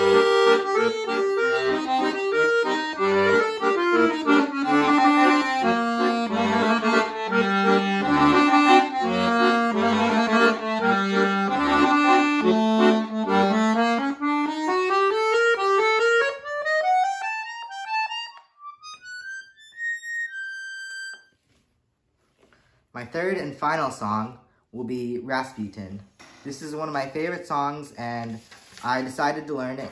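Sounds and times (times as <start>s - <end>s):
accordion playing: 0.0s - 21.4s.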